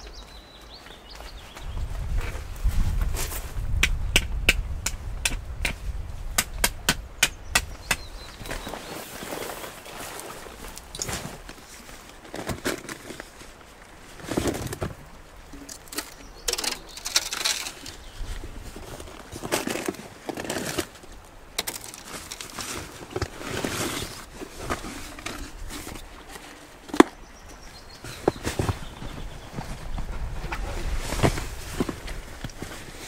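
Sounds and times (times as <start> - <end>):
rustling and handling noises: 8.2 - 33.0.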